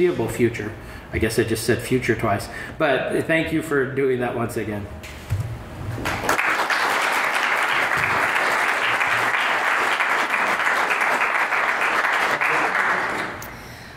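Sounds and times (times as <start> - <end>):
audience applauding: 6.0 - 13.5.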